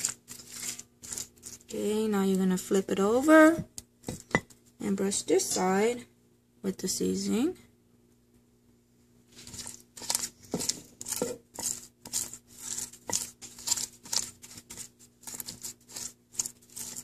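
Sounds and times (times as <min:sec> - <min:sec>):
pastry brush swishing sauce: 0:00.0 - 0:01.7, 0:09.3 - 0:17.0.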